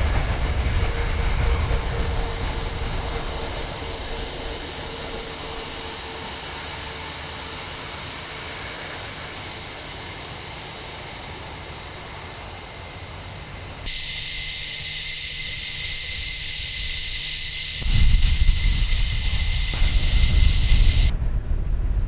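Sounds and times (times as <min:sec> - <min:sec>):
wind buffeting microphone: 0:00.0 - 0:07.3, 0:17.8 - 0:22.0
steady high hiss: 0:00.0 - 0:21.1.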